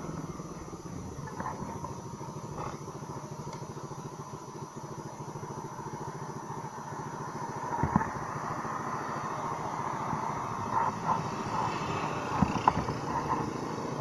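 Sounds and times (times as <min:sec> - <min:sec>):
scooter engine idling: 0:00.0 - 0:14.0.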